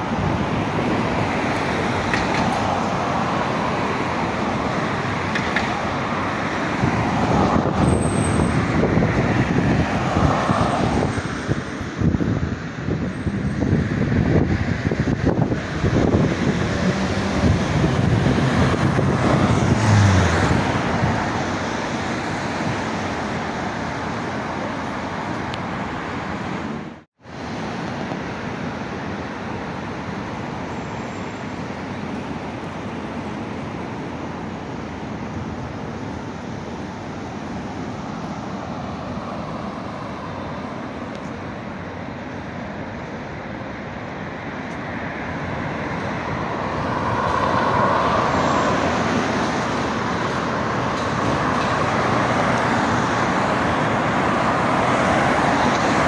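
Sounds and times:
street traffic noise: 0.0s - 56.0s
vehicle passing close: 14.6s - 22.6s.

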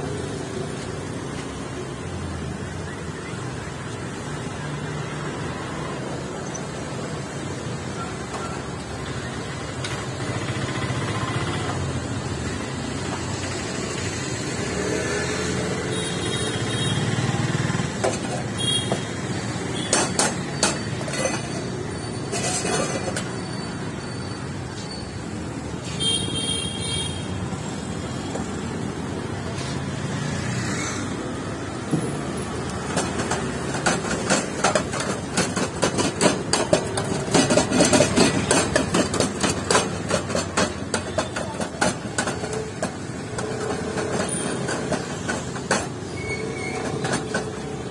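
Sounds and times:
street traffic: 0.0s - 47.9s.

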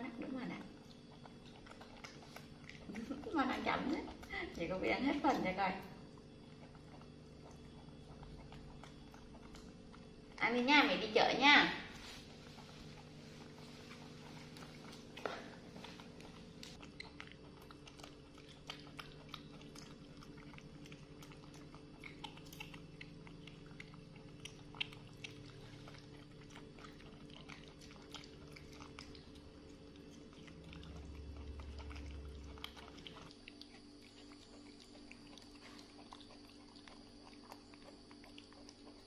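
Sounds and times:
monkeys chewing and crunching: 0.0s - 39.0s
steady low hum: 0.0s - 39.0s
low rumble: 30.4s - 33.3s.

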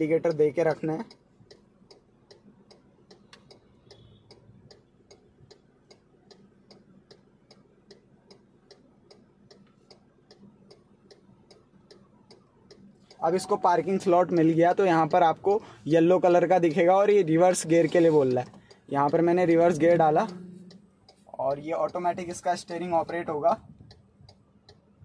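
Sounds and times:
turn signal ticking: 0.0s - 25.0s
faint hum: 19.3s - 25.0s.

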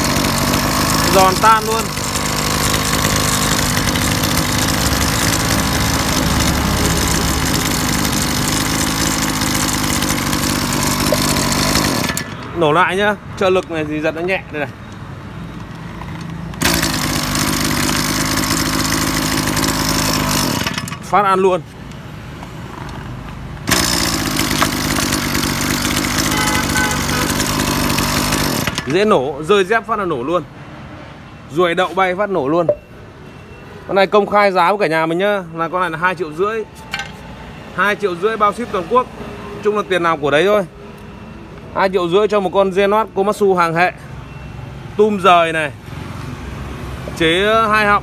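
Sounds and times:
brush cutter engine idling: 0.0s - 12.7s, 15.5s - 22.0s, 22.8s - 29.1s.

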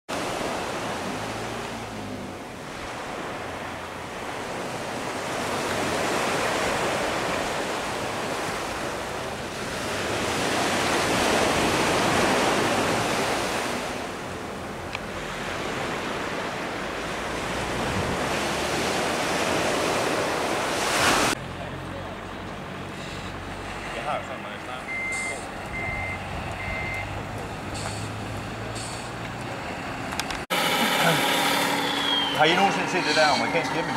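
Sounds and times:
waves breaking on shingle beach: 0.1s - 14.4s, 15.2s - 21.4s.

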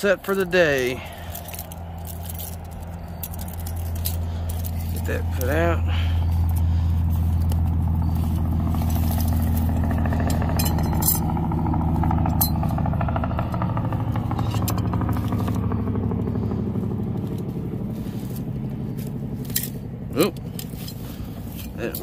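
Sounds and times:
engine humming: 0.0s - 22.0s.

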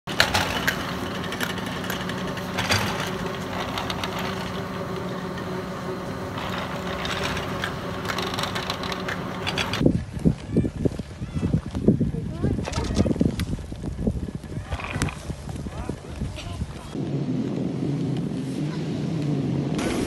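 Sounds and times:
clicks and rattles: 0.0s - 9.8s
ski lift mechanical hum: 0.0s - 20.0s.

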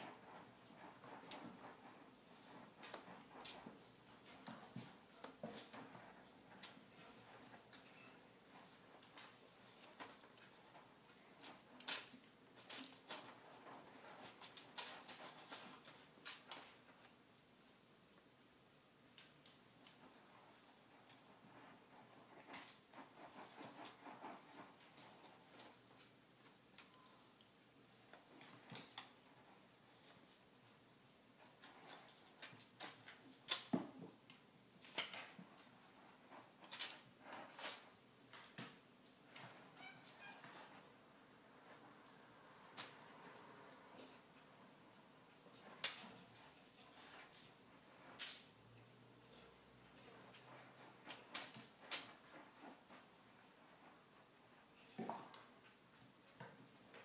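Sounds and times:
kitten scratching in litter: 0.0s - 17.2s, 19.8s - 26.2s
kitten digging in cat litter: 0.0s - 57.0s.

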